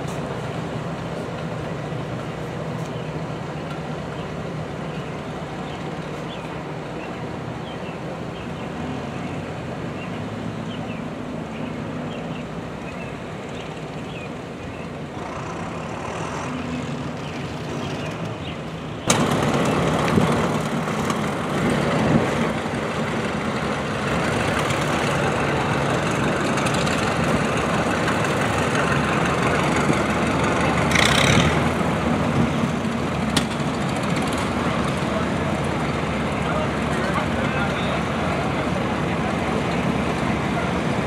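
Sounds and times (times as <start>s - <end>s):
tractor engines running: 0.0s - 41.0s.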